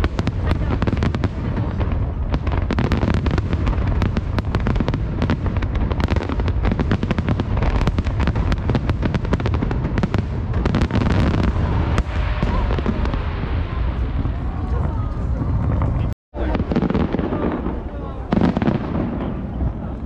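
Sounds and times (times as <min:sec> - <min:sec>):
fireworks bangs: 0:00.0 - 0:20.0
low rumble: 0:11.5 - 0:16.2.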